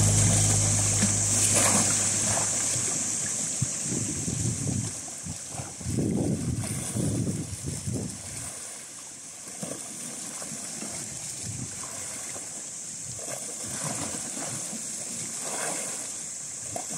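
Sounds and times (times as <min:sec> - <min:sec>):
steady high hiss: 0:00.0 - 0:04.8
water lapping against rocks: 0:00.0 - 0:16.9.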